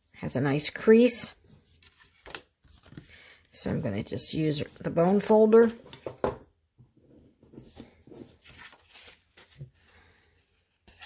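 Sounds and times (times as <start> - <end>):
paper rustling: 1.4 - 3.3, 7.5 - 11.0.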